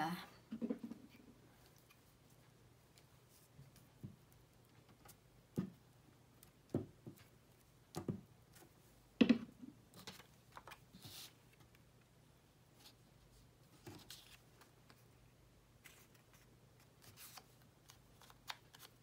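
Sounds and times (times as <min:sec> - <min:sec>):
paper rustle: 0:13.7 - 0:15.0, 0:15.8 - 0:19.0.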